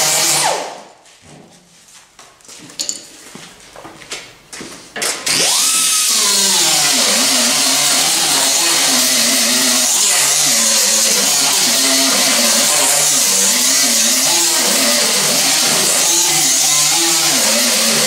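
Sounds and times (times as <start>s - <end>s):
air die grinder grinding metal: 5.3s - 18.0s.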